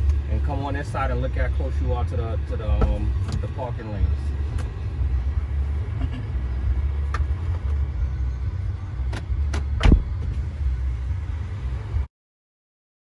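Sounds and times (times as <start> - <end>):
car engine idling: 0.0 - 12.1
heavy thump: 9.1 - 10.4.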